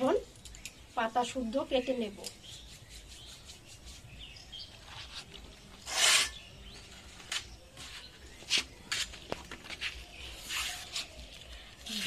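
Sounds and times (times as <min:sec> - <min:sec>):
blade cutting stalks: 0:05.8 - 0:06.5.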